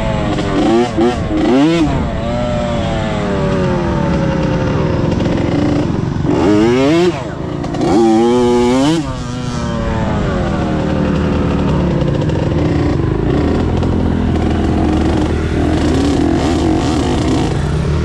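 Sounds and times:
dirt bike engine revving: 0.0s - 18.0s.

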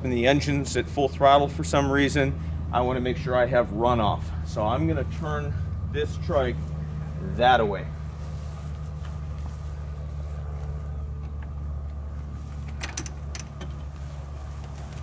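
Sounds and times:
steady low hum: 0.0s - 15.0s
light frame clicks and rattles: 12.6s - 14.1s.

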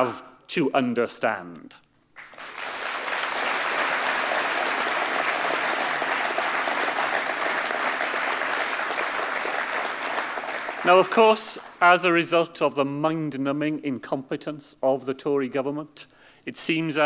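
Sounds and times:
audience applauding: 2.2s - 11.8s.

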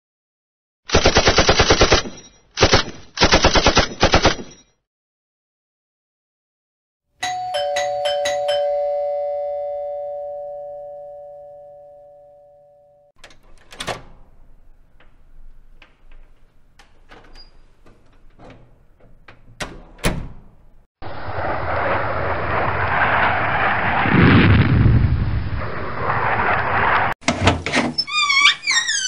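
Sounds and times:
doorbell chime: 7.2s - 13.1s
door unlatched and opened: 13.2s - 20.7s
loud rush of noise: 21.0s - 27.1s.

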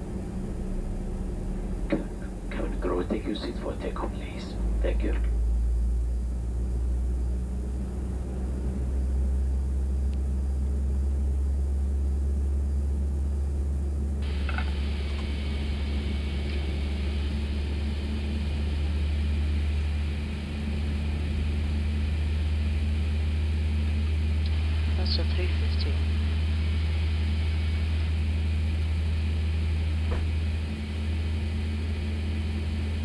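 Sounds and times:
jet engine hum in cockpit: 0.0s - 33.0s
higher hiss: 14.2s - 22.6s.

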